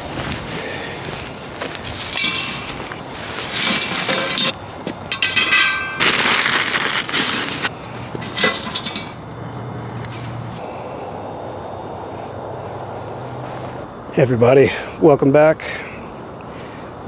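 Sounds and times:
steel ringing: 1.9s - 6.5s, 8.2s - 9.2s
metal clinks: 2.0s - 6.3s
metal ring clanking on rim: 2.0s - 6.3s, 8.2s - 9.2s
kindling and paper rustling: 5.7s - 7.7s.

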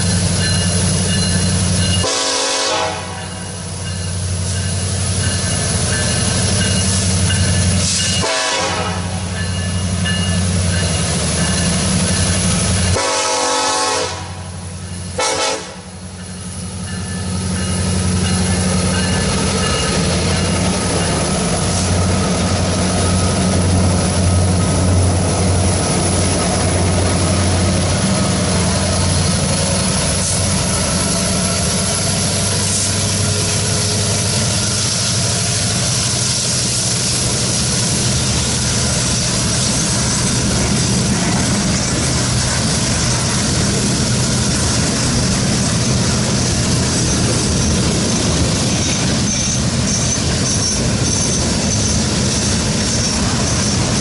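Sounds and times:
diesel locomotive engine drone: 0.0s - 54.0s
steel wheels rumbling on rail: 0.0s - 54.0s
train horn: 2.0s - 3.4s, 8.1s - 9.2s, 12.9s - 14.6s, 15.2s - 16.0s.

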